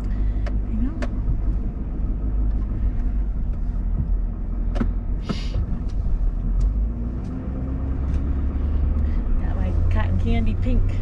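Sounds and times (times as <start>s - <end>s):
road and engine rumble: 0.0s - 11.0s
short hiss: 5.2s - 5.6s.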